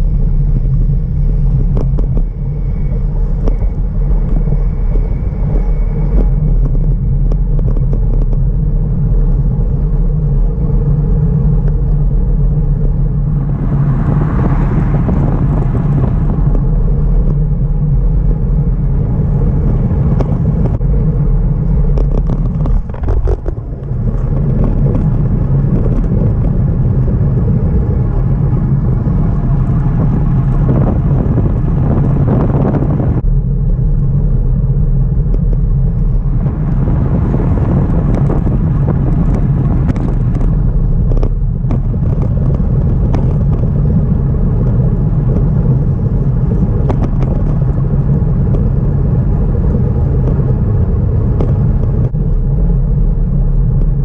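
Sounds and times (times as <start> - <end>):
road noise: 0.0 - 54.0
wind buffeting microphone: 0.0 - 54.0
vehicle passing: 13.0 - 20.8.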